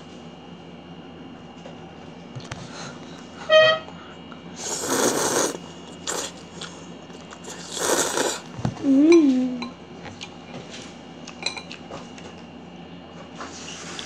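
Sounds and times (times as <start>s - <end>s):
child slurping noodles: 4.6s - 6.4s, 7.4s - 8.5s
child humming: 8.8s - 9.7s.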